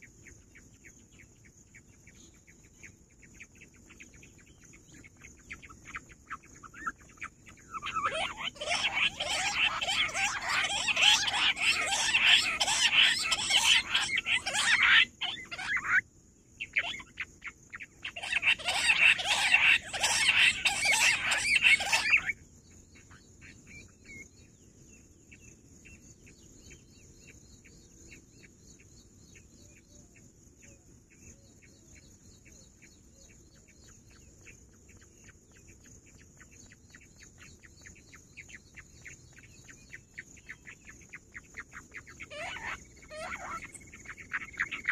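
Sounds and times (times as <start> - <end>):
quail rapid chattering calls: 5.0 - 16.0, 16.6 - 22.4, 37.2 - 44.9.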